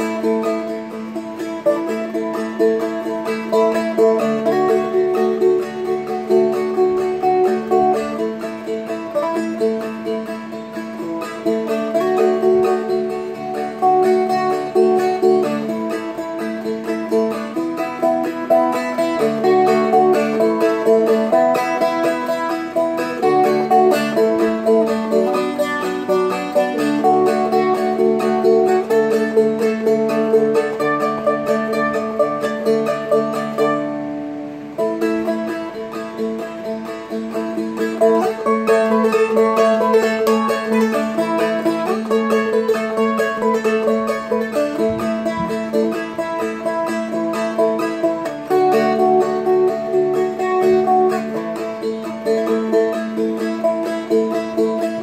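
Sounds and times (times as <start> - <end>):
flat-picked dulcimer melody: 0.0 - 34.0, 34.8 - 55.0.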